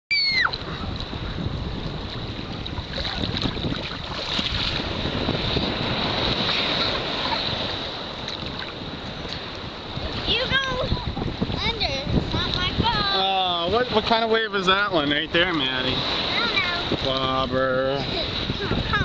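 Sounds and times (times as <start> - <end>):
ocean surf washing: 0.1 - 19.0
wind buffeting microphone: 0.2 - 19.0.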